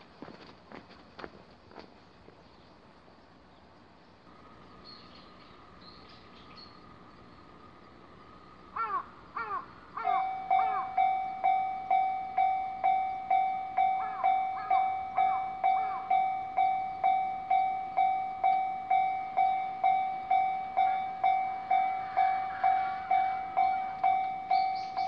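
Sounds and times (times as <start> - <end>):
level-crossing warning bell ringing: 10.0 - 25.0.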